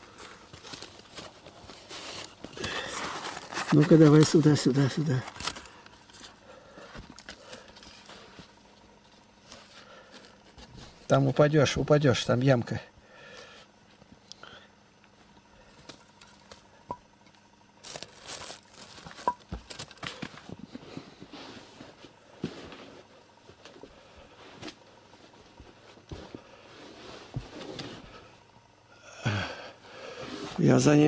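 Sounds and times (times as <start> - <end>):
faint rustling and crinkling: 0.0 - 11.4, 17.4 - 28.4.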